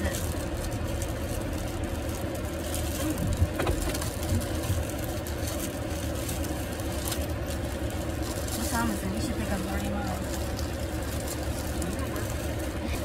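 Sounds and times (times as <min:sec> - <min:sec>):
car cabin rumble: 0:00.0 - 0:13.0.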